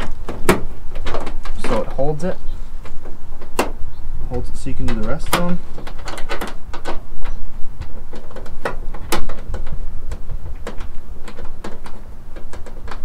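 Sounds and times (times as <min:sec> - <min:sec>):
plastic liner flexing: 0:00.0 - 0:13.0
screw clicking and scraping in plastic: 0:04.9 - 0:13.0.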